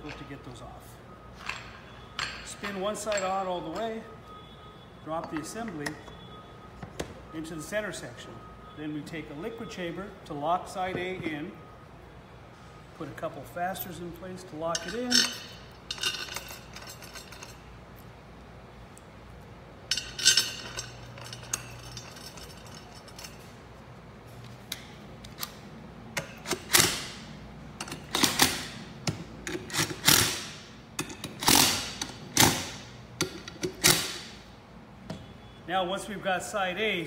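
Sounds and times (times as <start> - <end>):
metal clinks: 1.4 - 4.1, 14.7 - 18.0, 19.9 - 23.6.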